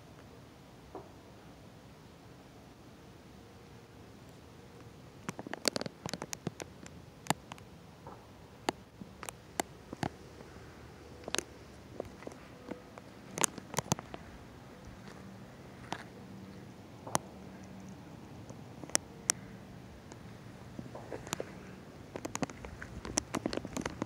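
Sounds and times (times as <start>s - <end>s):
faint steady hum: 0.0s - 24.0s
phone case ticking: 8.7s - 14.3s.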